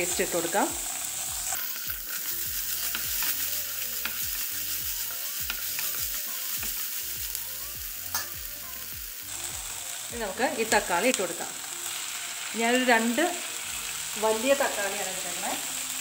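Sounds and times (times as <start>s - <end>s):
onions sizzling in oil: 0.0s - 16.0s
spatula scraping and tapping pan: 1.5s - 4.4s, 5.0s - 6.8s, 8.1s - 8.4s.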